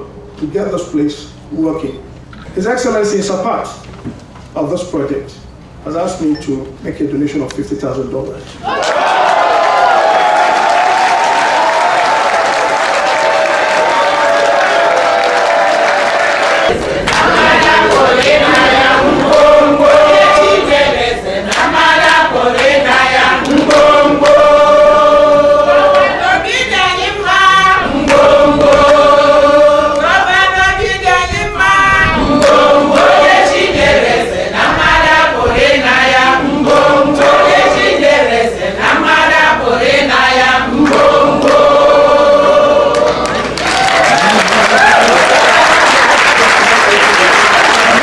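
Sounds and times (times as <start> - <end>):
women singing in chorus: 16.5 - 43.3.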